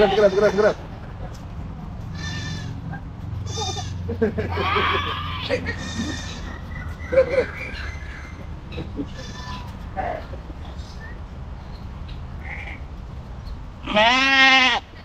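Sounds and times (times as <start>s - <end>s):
goat bleating: 0.0s - 0.9s, 2.0s - 6.7s, 8.8s - 10.3s, 13.8s - 15.0s.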